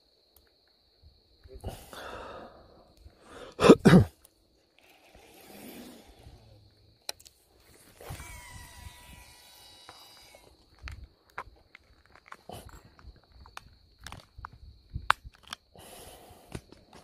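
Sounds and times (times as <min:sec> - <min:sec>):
thin whirring: 0:07.6 - 0:10.6.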